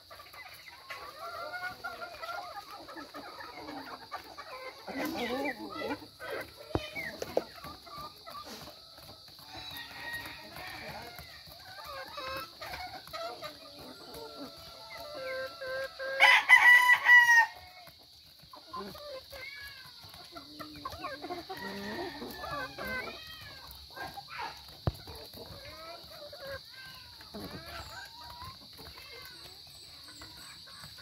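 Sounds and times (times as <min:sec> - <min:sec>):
chickens clucking: 0:00.0 - 0:31.0
rooster crowing: 0:09.4 - 0:11.2, 0:16.2 - 0:17.7, 0:21.6 - 0:23.1.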